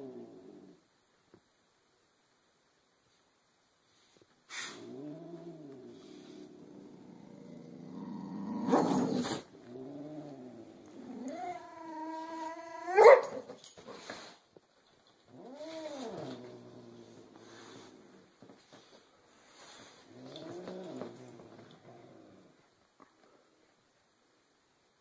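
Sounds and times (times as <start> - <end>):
cat growling and yowling: 4.6 - 13.4, 15.3 - 17.9.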